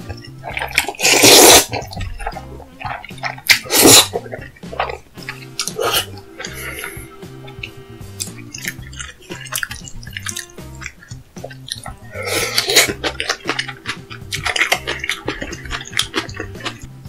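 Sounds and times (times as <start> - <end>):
background music with bass: 0.0 - 17.0
wet mouth clicks and smacks: 7.5 - 12.0.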